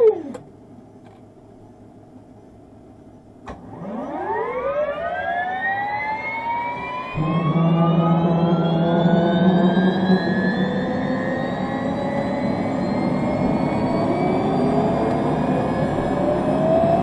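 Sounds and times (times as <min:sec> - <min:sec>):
turbine whine rising in pitch: 0:03.5 - 0:17.0
low steady engine hum: 0:06.5 - 0:17.0.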